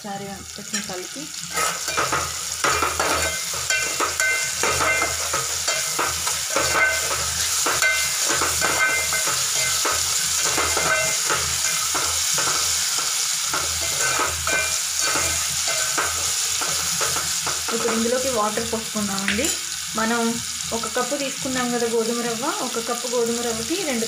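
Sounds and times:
food sizzling in hot oil: 0:00.0 - 0:24.0
ladle scraping a metal pot: 0:01.5 - 0:17.5.

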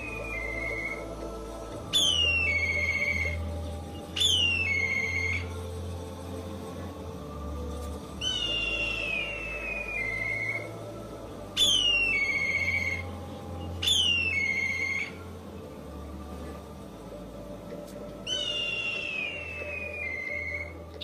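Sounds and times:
kite calling shrill whistle: 0:01.9 - 0:03.5, 0:04.1 - 0:05.5, 0:08.2 - 0:10.7, 0:11.6 - 0:13.0, 0:13.8 - 0:15.2, 0:18.2 - 0:20.8.

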